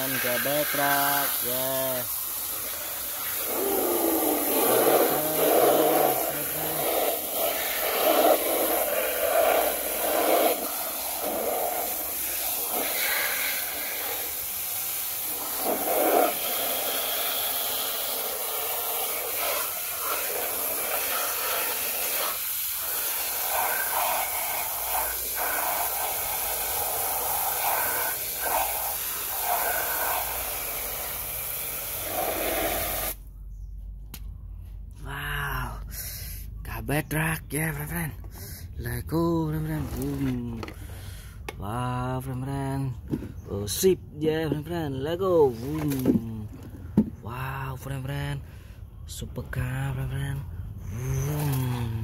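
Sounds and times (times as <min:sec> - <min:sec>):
hose spraying water: 0:00.0 - 0:33.2, 0:51.1 - 0:52.0.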